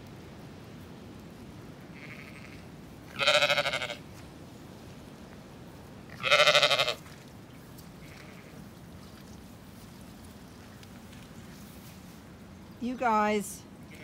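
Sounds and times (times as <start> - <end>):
sheep bleating: 2.0 - 4.0, 6.1 - 7.1, 8.0 - 8.6.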